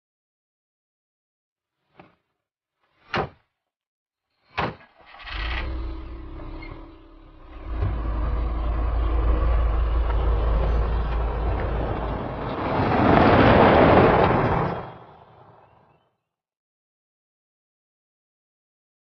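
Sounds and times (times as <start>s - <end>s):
car engine rumble: 5.0s - 15.7s
car passing with tyre rush: 7.3s - 16.0s.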